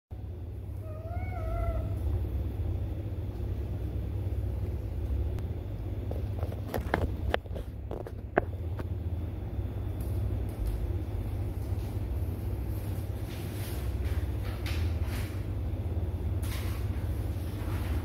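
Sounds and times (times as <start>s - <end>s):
steady low rumble: 0.1s - 18.0s
cat meowing: 0.8s - 2.1s.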